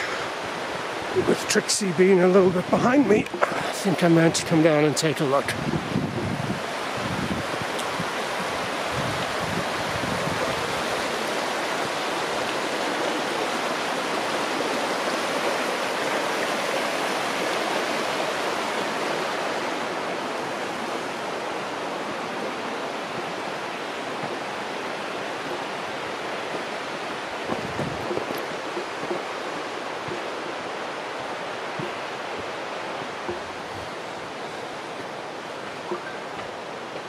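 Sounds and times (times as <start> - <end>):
river rushing over rocks: 0.0 - 37.0.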